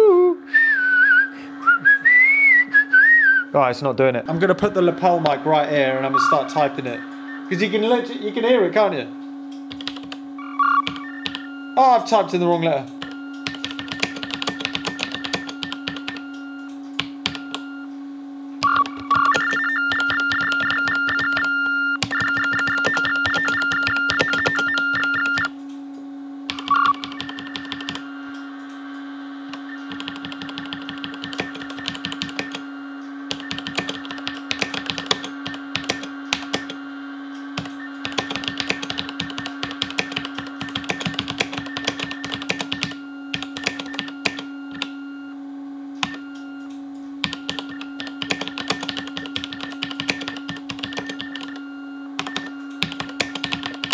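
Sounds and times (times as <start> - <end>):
steady low hum: 0.0 - 53.9
warbling textphone beeps: 6.1 - 7.6, 10.4 - 11.8, 13.0 - 16.7, 18.6 - 25.5, 26.5 - 28.3, 29.6 - 36.7, 37.8 - 45.4, 47.3 - 53.9
mechanical keys typing: 9.5 - 10.2, 10.8 - 11.5, 12.7 - 17.7, 18.6 - 25.7, 26.5 - 28.8, 29.5 - 32.6, 33.3 - 36.8, 37.4 - 44.9, 46.0 - 53.9.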